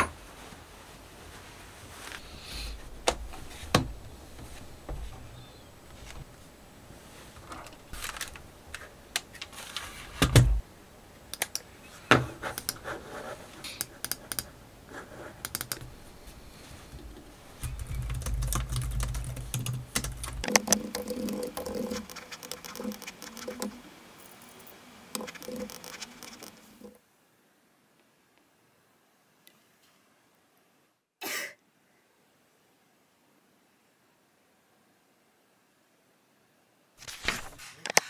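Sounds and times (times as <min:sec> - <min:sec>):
computer keys clicking: 0:12.5 - 0:12.8, 0:13.8 - 0:14.5, 0:15.4 - 0:15.9, 0:17.6 - 0:23.8, 0:25.2 - 0:26.6.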